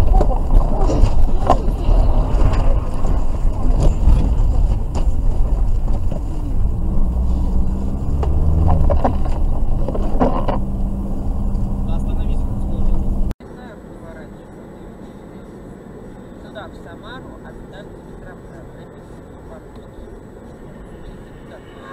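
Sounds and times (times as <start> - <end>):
engine and tyre rumble: 0.0 - 21.9
engine hum: 0.0 - 21.9.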